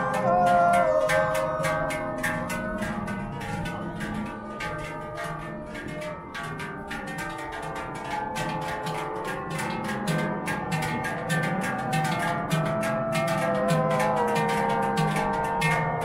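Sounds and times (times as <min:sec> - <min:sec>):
large cowbells clanging: 0:00.0 - 0:16.0.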